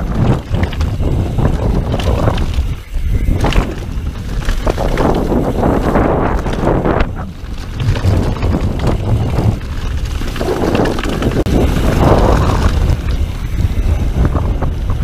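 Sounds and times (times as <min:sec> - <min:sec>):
bike knocks and rattles: 0:00.0 - 0:15.0
tyres rumbling: 0:00.0 - 0:15.0
wind rushing over microphone: 0:00.0 - 0:15.0.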